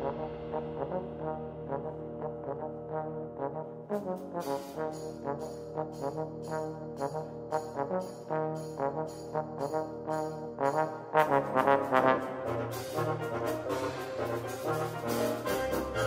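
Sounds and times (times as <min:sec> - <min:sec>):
solo trombone: 0:00.0 - 0:16.0
percussion strikes: 0:04.2 - 0:16.0
concert band playing: 0:11.4 - 0:16.0.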